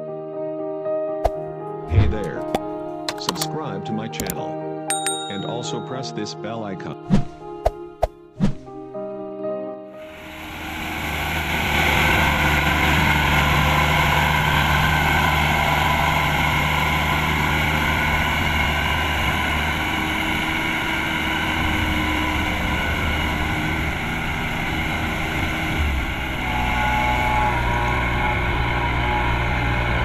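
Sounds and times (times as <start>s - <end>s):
combine harvester diesel engine: 10.1s - 30.0s
high mechanical whine: 10.1s - 30.0s.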